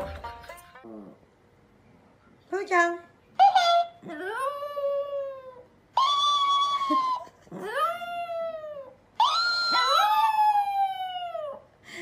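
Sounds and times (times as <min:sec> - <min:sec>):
dog howling: 0:03.5 - 0:11.6.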